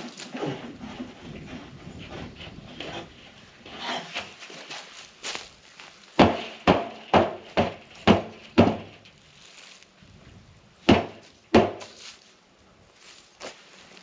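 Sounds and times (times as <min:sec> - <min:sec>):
hard knocks on metal feeder: 0:06.2 - 0:09.0, 0:10.9 - 0:11.9.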